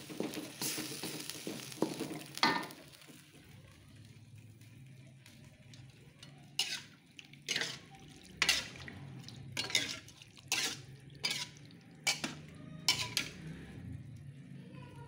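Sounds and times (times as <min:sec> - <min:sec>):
spatula scraping a pan of stew: 0:06.2 - 0:13.8.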